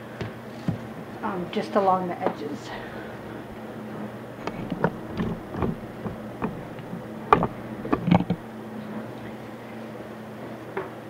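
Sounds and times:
steady low hum: 0:00.0 - 0:10.5
wooden cover knocking: 0:04.4 - 0:08.4.

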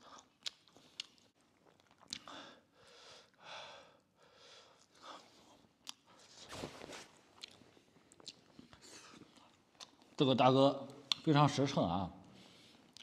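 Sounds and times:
faint chewing: 0:00.0 - 0:02.4, 0:07.2 - 0:10.2, 0:12.4 - 0:13.0.

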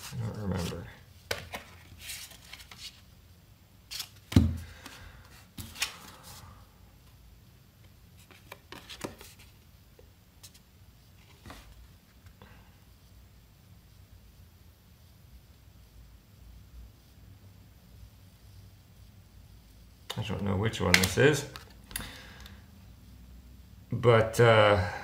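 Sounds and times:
cards rustling and sliding: 0:00.0 - 0:03.1, 0:03.9 - 0:06.4, 0:08.2 - 0:09.6, 0:11.2 - 0:11.8
card thump: 0:04.3 - 0:04.6.

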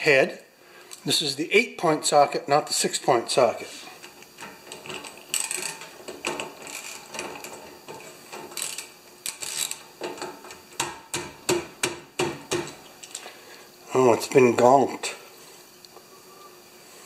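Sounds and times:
socket ratchet clicking: 0:04.4 - 0:11.3.

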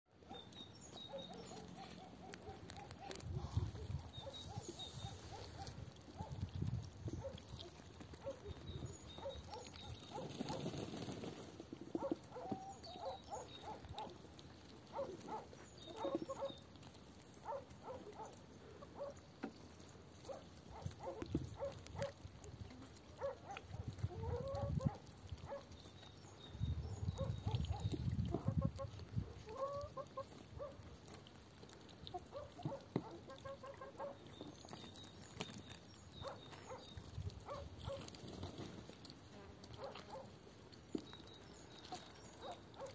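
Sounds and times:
hens pecking taps: 0:05.4 - 0:25.8, 0:27.2 - 0:35.6
hens clucking: 0:28.3 - 0:30.5, 0:32.1 - 0:34.2.

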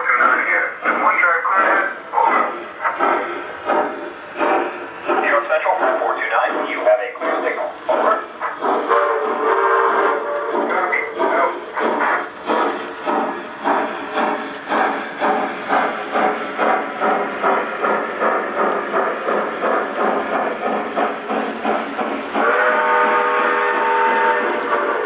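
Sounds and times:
model steam locomotive chuffing: 0:00.0 - 0:25.0
multi-tone steam whistle: 0:08.9 - 0:11.4, 0:22.4 - 0:25.0.

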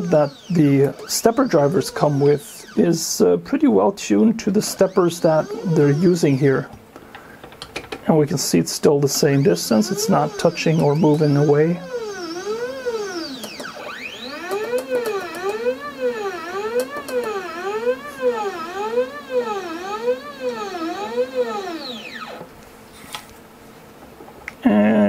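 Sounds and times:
stepper motor whine: 0:00.0 - 0:03.4, 0:04.2 - 0:06.7, 0:08.9 - 0:22.5.

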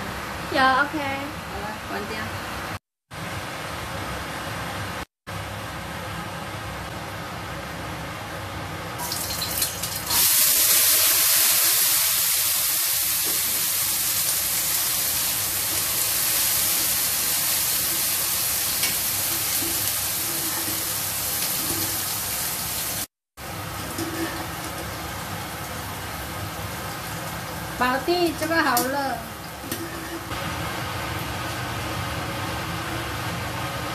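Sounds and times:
food sizzling in hot oil: 0:09.0 - 0:33.3.

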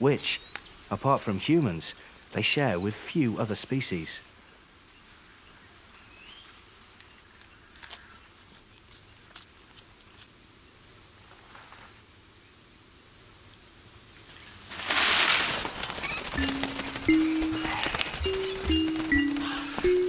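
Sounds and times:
monkey crunching charcoal: 0:07.0 - 0:10.4.

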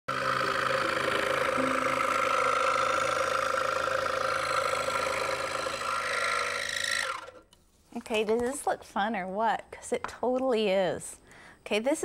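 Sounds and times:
scroll saw cutting wood: 0:00.1 - 0:07.5.

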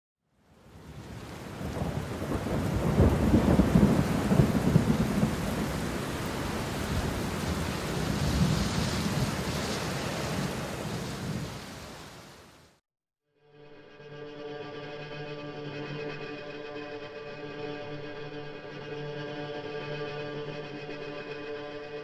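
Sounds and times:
steady rain: 0:00.4 - 0:12.8
thunder rumbling: 0:00.8 - 0:12.2.

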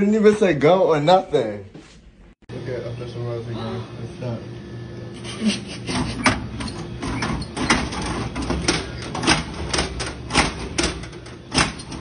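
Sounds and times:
vending machine flap clacking: 0:05.9 - 0:12.0.

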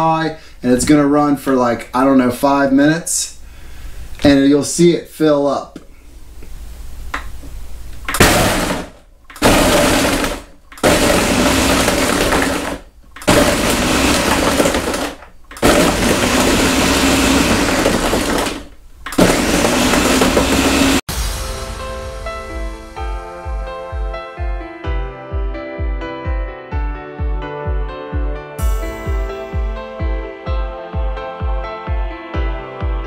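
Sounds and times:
blender crushing ice: 0:08.1 - 0:21.0.

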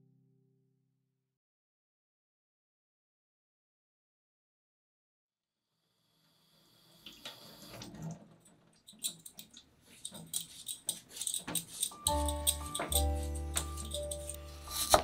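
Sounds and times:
water in kitchen sink: 0:06.7 - 0:15.0
scraping strokes on potato: 0:09.8 - 0:15.0.

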